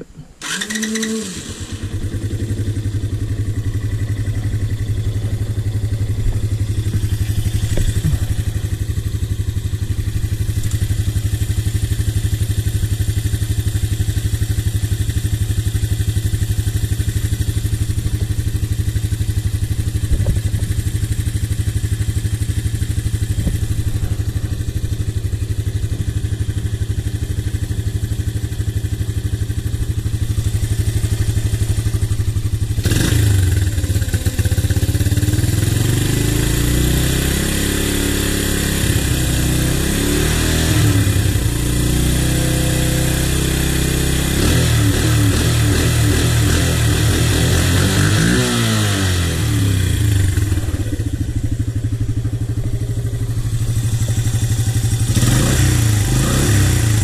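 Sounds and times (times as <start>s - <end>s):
quad engine idling: 0.0s - 57.0s.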